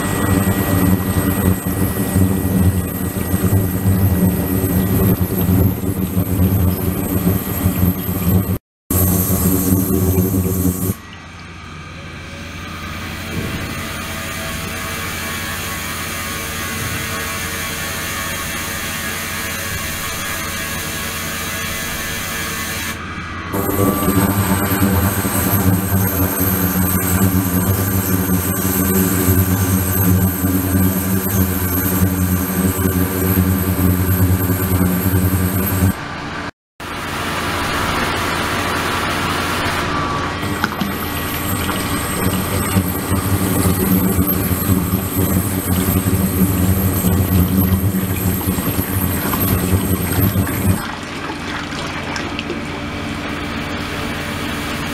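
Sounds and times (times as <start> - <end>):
water flowing through tube: 0.0 - 11.5, 23.6 - 36.0, 40.4 - 52.8
low hum: 0.0 - 15.3, 23.0 - 36.5, 37.4 - 51.0
thin high steady tones: 23.6 - 36.0, 40.4 - 50.8.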